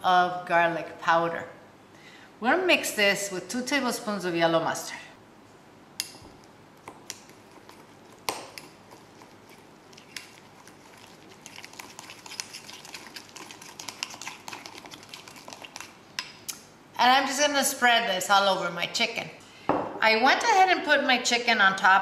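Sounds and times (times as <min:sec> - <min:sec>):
spoon scraping bowl: 0:07.1 - 0:16.0.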